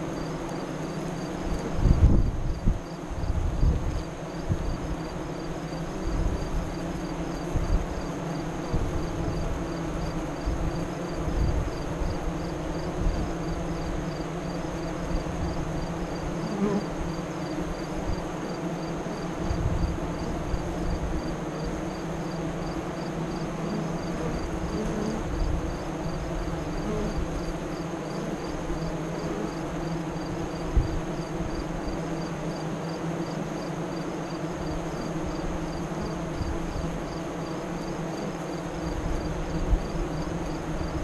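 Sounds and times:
bees buzzing: 0:00.0 - 0:41.0
wind rumble on microphone: 0:01.5 - 0:05.1, 0:07.4 - 0:08.0, 0:08.6 - 0:09.6, 0:10.4 - 0:13.6, 0:19.4 - 0:21.3, 0:24.6 - 0:27.4, 0:30.6 - 0:31.6.

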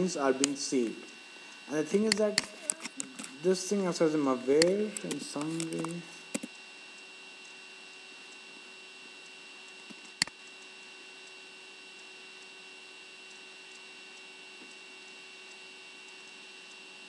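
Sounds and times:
faint electrical hum and hiss: 0:00.0 - 0:17.0
sharp click: 0:01.9 - 0:03.4, 0:04.5 - 0:06.6, 0:09.9 - 0:10.4.

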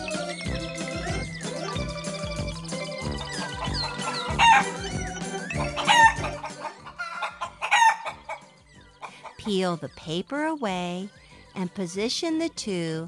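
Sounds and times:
light background music: 0:00.0 - 0:13.0
chicken calls: 0:00.5 - 0:09.6.

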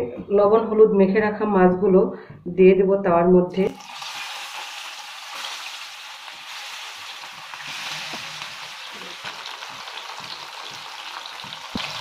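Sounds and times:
fish sizzling in oil: 0:03.7 - 0:12.0.

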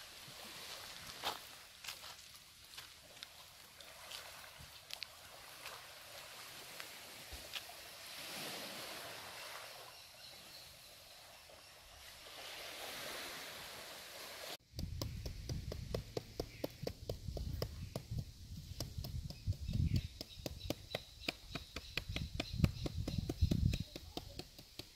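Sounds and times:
gentle surf hissing: 0:00.0 - 0:14.6.

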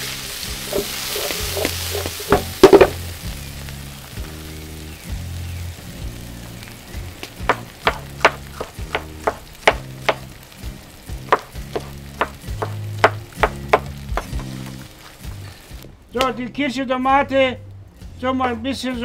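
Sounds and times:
knife chopping on wooden board: 0:07.5 - 0:10.3, 0:11.3 - 0:14.5.

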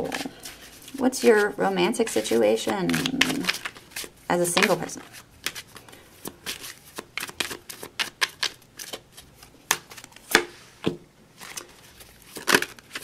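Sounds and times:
cards being shuffled: 0:00.0 - 0:13.0.

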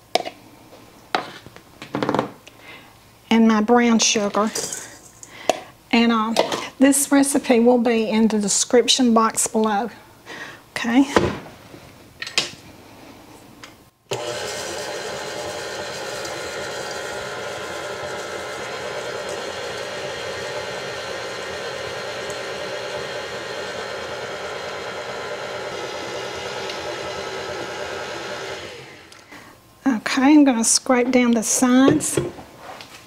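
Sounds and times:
stand mixer running: 0:14.1 - 0:29.1.

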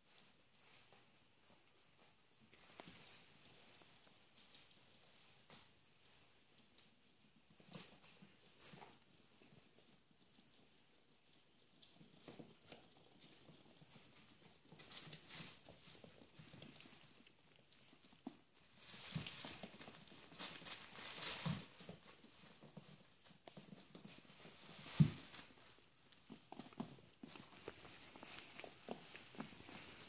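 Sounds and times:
puppy claws clicking on wood floor: 0:11.7 - 0:30.0
pee pad rustling: 0:12.2 - 0:30.0.

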